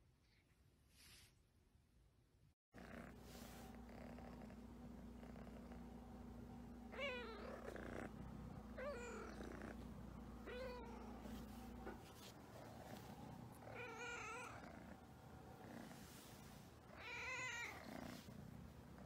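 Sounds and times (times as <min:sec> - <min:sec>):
cat meowing: 0:06.9 - 0:08.0, 0:08.8 - 0:09.6, 0:13.6 - 0:14.7, 0:16.9 - 0:17.9.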